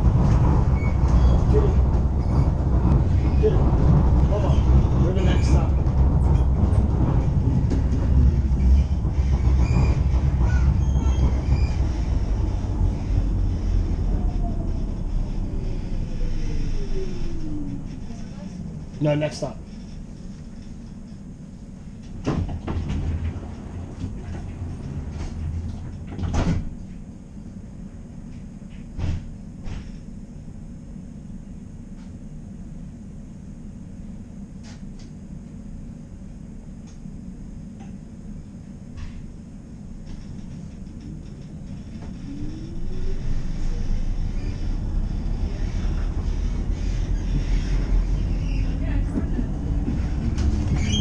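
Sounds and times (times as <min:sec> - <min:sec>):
train doors clunking: 0:00.0 - 0:15.0, 0:22.0 - 0:26.9
train wheels rumbling on rails: 0:00.0 - 0:30.2, 0:36.9 - 0:51.0
low hum: 0:00.0 - 0:51.0
faint high squeals: 0:09.3 - 0:12.2, 0:12.9 - 0:18.8, 0:41.7 - 0:45.9, 0:50.7 - 0:51.0.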